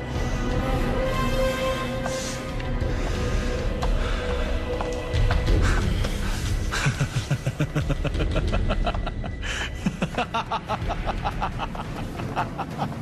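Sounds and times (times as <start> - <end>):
man laughing: 6.7 - 13.0.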